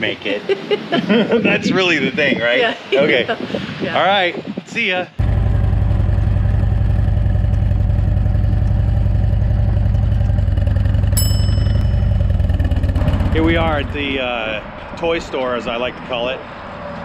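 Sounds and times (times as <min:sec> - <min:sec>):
motorcycle engine running: 0:05.2 - 0:14.2
bright ding: 0:11.2 - 0:12.5.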